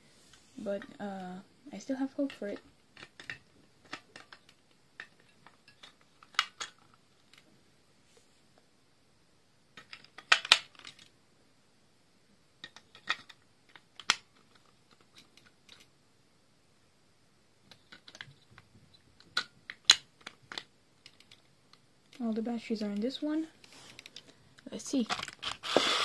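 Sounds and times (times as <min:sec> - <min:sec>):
batteries clicking and clinking: 0:23.8 - 0:26.0.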